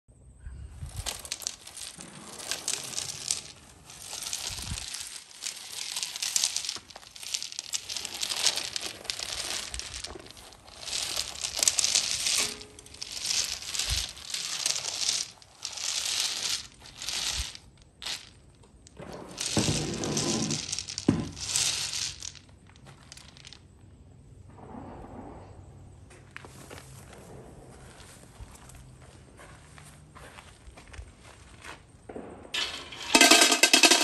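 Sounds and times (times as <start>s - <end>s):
nuts clicking and rattling: 0.4s - 24.4s, 32.6s - 34.0s
wire basket scraping over turf: 0.8s - 18.2s, 19.0s - 22.3s.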